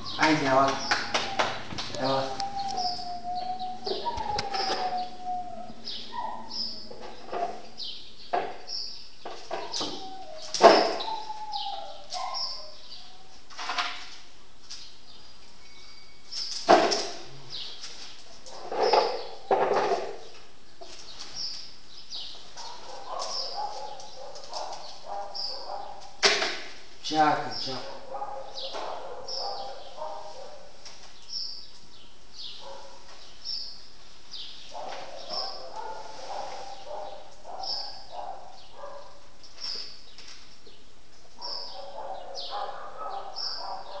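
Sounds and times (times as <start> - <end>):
high-pitched animal cries: 0.0 - 6.9
small birds chirping: 0.0 - 44.0
faint animal whines: 1.0 - 7.0, 9.6 - 13.5.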